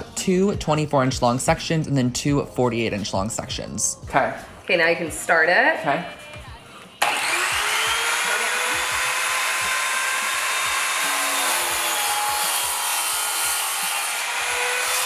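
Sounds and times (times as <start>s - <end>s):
miter saw cutting wood: 7.0s - 15.0s.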